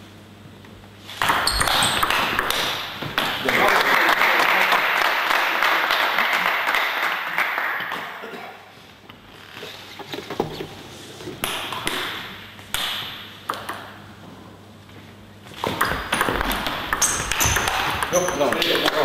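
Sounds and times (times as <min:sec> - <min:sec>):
table tennis ball clicks: 0:12.8 - 0:13.9.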